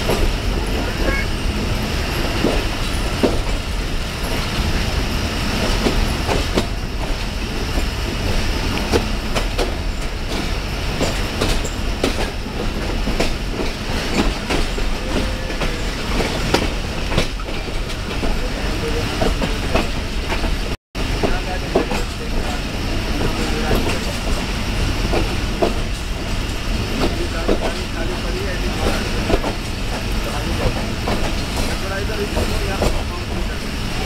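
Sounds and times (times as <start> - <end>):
train rumble: 0.0 - 34.0.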